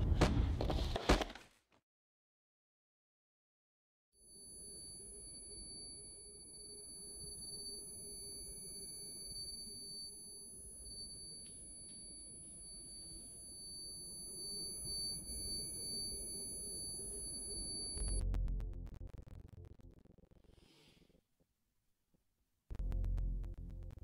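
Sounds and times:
high-pitched electronic tone: 4.3 - 18.2.

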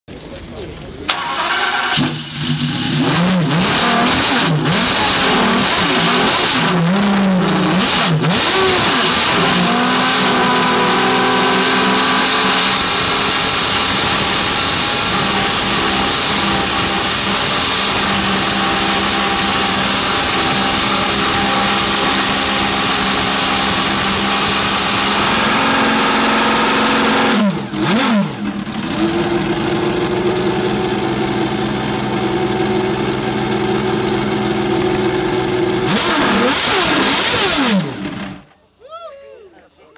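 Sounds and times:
engine cracks on throttle blips: 0.7 - 38.6
race car engine idling and revving: 1.0 - 38.5.

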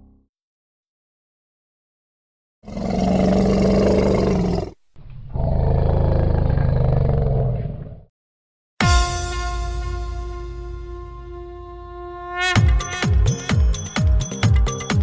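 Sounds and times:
elephant roaring: 2.6 - 8.0.

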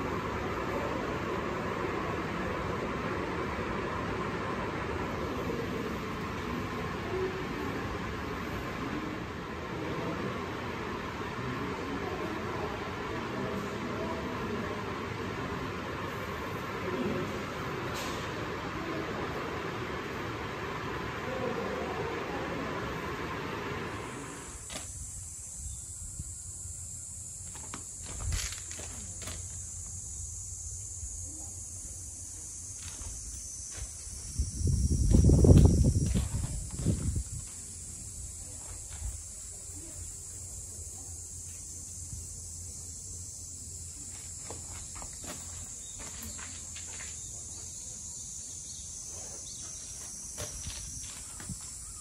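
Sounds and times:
high-pitched hiss: 0.0 - 52.0
high-pitched buzz: 21.2 - 38.2.

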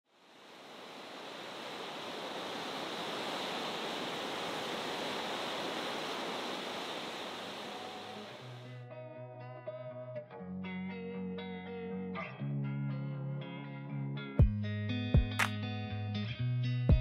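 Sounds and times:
river water over rapids: 0.1 - 8.6.

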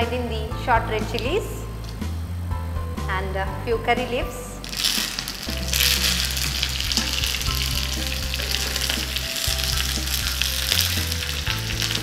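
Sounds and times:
spices sizzling in hot oil: 4.6 - 12.0.

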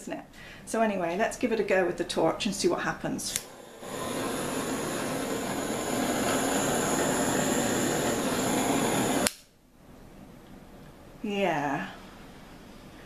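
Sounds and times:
gas torch hissing: 3.1 - 9.5
torch shutoff click: 3.2 - 9.5.

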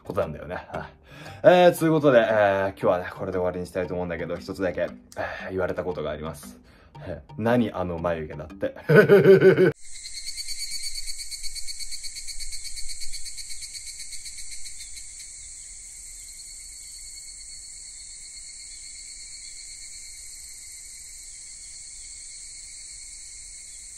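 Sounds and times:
crickets trilling: 9.8 - 23.9.

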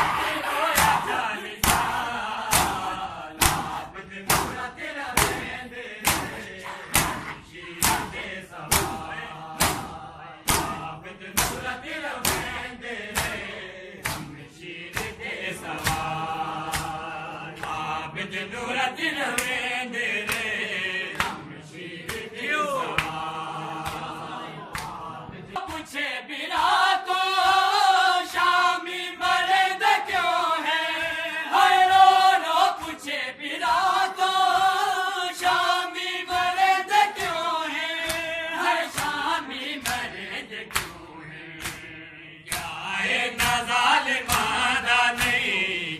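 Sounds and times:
men chanting in chorus: 0.0 - 45.9
hands striking bare chests: 0.8 - 15.2.

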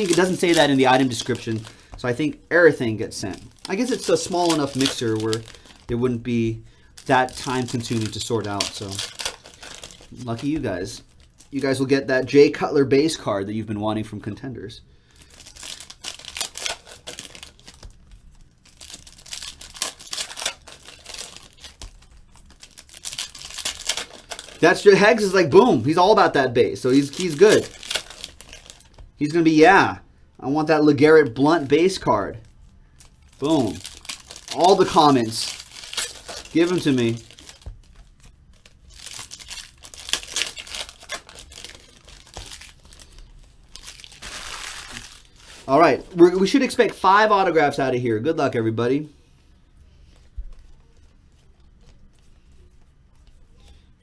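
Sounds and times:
card pack wrappers crinkling: 0.0 - 11.9, 15.1 - 29.4, 31.2 - 47.4.

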